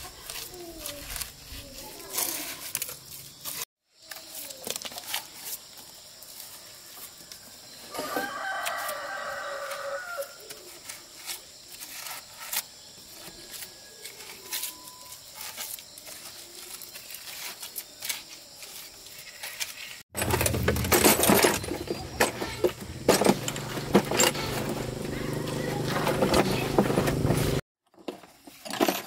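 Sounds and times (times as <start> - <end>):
rooster crowing: 7.9 - 10.4, 23.3 - 26.8.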